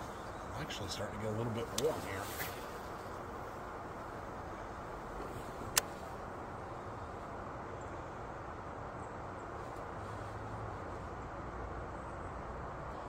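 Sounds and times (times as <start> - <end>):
sharp click: 5.7 - 6.0.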